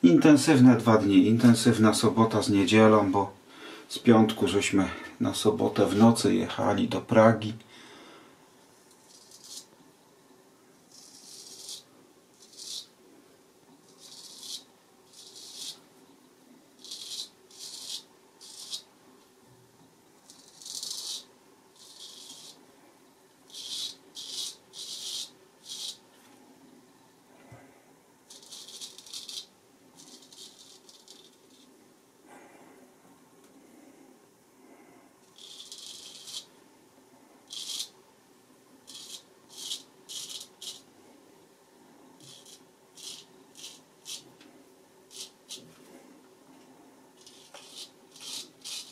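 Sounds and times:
razor scraping stubble: 9.0 - 9.7, 10.9 - 12.9, 13.8 - 15.8, 16.8 - 18.9, 20.2 - 22.6, 23.5 - 26.0, 28.3 - 31.7, 35.2 - 36.5, 37.5 - 37.9, 38.9 - 40.9, 42.2 - 44.3, 45.1 - 45.7, 47.2 - 48.9.

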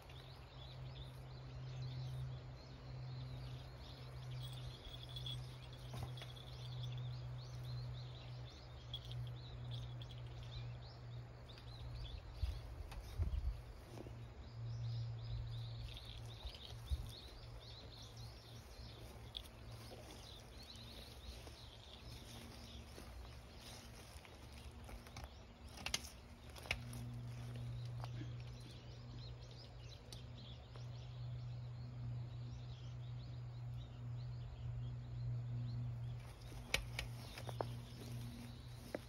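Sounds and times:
steady low hum: 0.0 - 39.0
sharp clicks and rustles: 15.8 - 28.6, 36.2 - 39.0.

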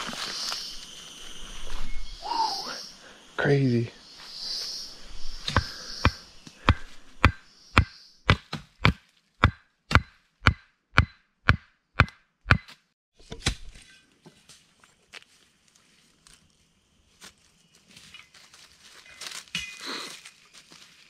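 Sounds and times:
stakes being hammered: 5.5 - 12.8
rustling: 14.3 - 21.0.

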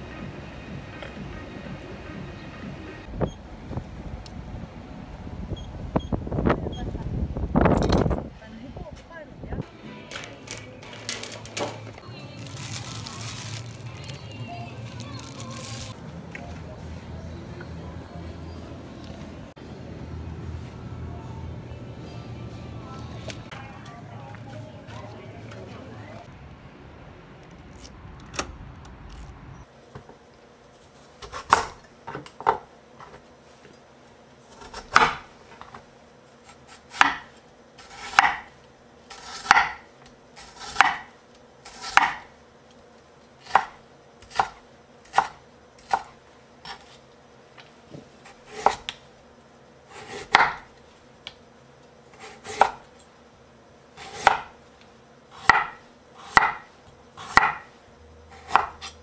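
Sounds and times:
knife chopping on wooden board: 36.9 - 38.5, 39.2 - 39.8, 40.5 - 41.1, 41.7 - 42.3, 50.0 - 50.7, 54.0 - 54.5, 55.4 - 57.7, 58.4 - 59.0.

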